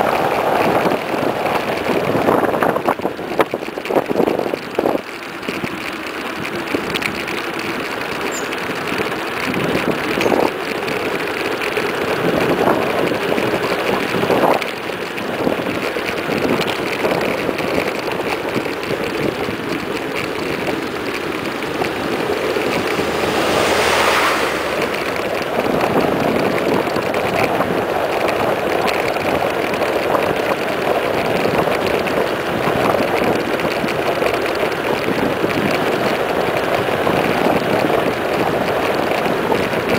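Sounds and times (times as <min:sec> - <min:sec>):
bike tyre noise on pavement: 0:00.0 - 0:39.9
wind buffeting microphone: 0:00.0 - 0:39.9
truck passing: 0:18.8 - 0:28.1.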